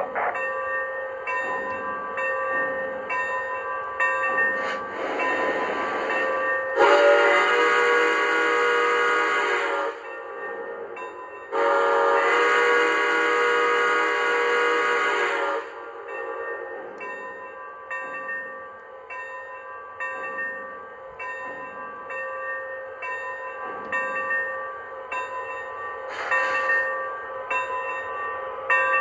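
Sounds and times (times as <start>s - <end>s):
soft locomotive sounds: 0.0s - 29.0s
steam whistle chord blasts: 6.8s - 10.0s.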